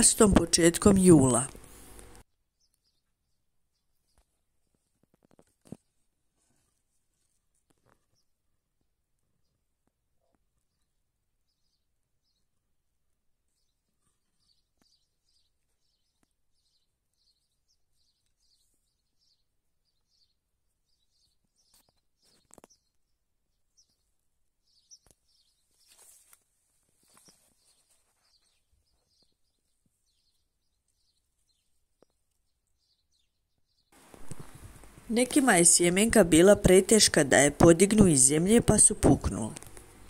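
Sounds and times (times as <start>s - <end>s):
soft rustles and clicks: 4.1s - 8.3s, 25.0s - 32.5s, 34.0s - 35.4s.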